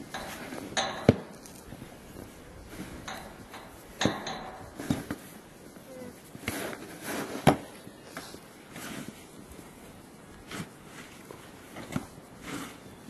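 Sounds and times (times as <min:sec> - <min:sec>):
shovel scraping snow: 0:06.3 - 0:07.7, 0:08.7 - 0:09.3, 0:10.4 - 0:11.2, 0:11.8 - 0:13.0.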